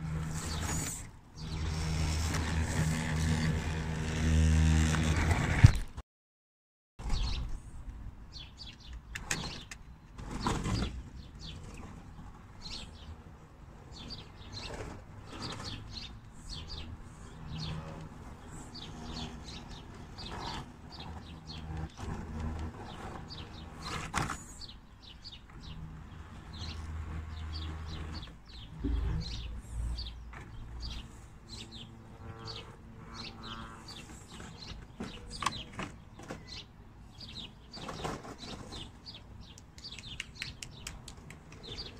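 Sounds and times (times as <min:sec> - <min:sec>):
knocks and scrapes: 0:00.0 - 0:06.0, 0:09.2 - 0:13.0, 0:13.9 - 0:24.7, 0:25.5 - 0:36.6, 0:37.2 - 0:39.2
toy car motor whirring: 0:00.1 - 0:05.7
small birds chirping: 0:08.3 - 0:13.2, 0:13.8 - 0:41.9.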